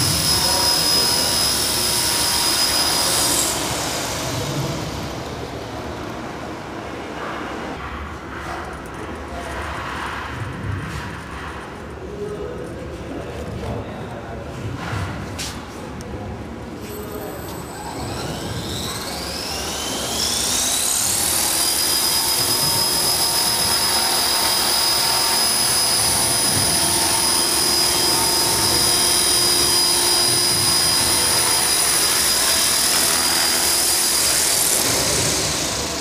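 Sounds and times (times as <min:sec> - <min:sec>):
rc helicopter motor whine: 0:00.0 - 0:06.5, 0:16.9 - 0:36.0.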